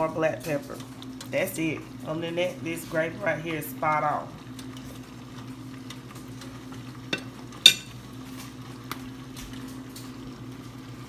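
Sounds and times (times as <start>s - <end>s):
gravy simmering with bubbling pops: 0.2s - 11.0s
metal tongs clinking on plate: 7.1s - 8.0s.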